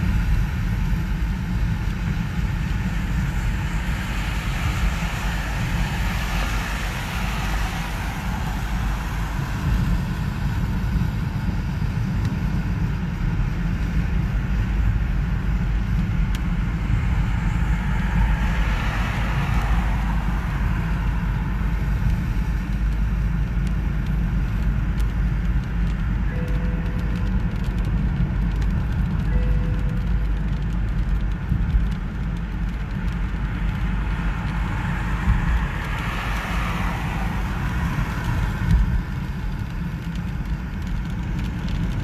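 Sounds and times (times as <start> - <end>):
car engine and road rumble: 0.0 - 42.0
tyre hiss on wet road: 3.7 - 10.5, 34.3 - 39.1
light ticks: 16.0 - 16.4, 22.0 - 34.6, 38.3 - 42.0.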